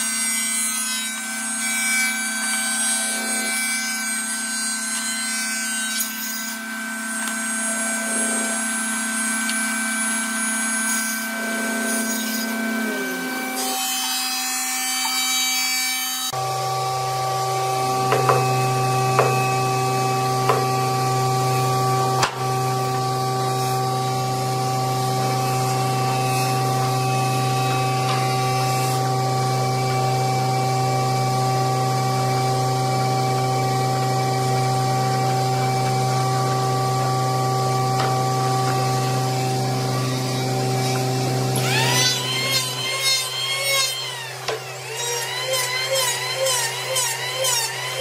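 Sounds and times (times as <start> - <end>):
woodworking machine humming: 0.1 - 48.0
sharp wooden knocks: 18.1 - 18.5.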